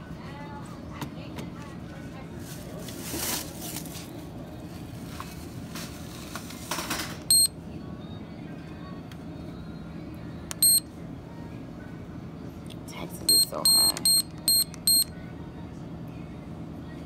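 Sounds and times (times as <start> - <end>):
rustling handling noise: 1.9 - 7.0
payment terminal beep: 7.3 - 7.6, 10.6 - 10.9, 13.3 - 15.1.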